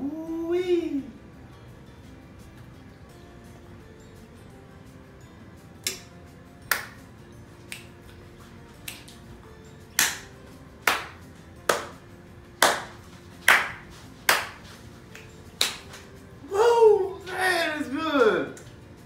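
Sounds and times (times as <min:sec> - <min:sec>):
faint background music: 0:00.0 - 0:19.0
finger snaps: 0:05.8 - 0:07.1, 0:07.7 - 0:08.2, 0:08.8 - 0:09.3, 0:09.9 - 0:10.3, 0:13.5 - 0:16.1, 0:18.6 - 0:18.8.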